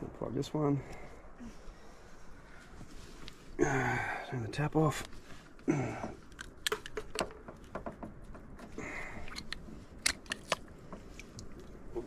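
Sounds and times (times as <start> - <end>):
hose fittings clicking: 6.0 - 11.5.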